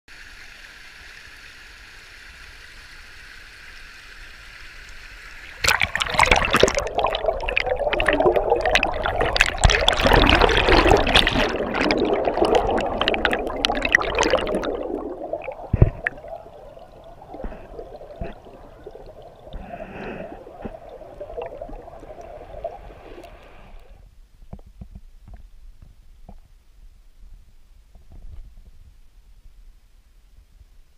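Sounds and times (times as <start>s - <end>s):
underwater gurgle with clicks: 5.3s - 25.5s
stream rushing over boulders: 5.4s - 24.0s
underwater churning rumble: 5.5s - 24.0s.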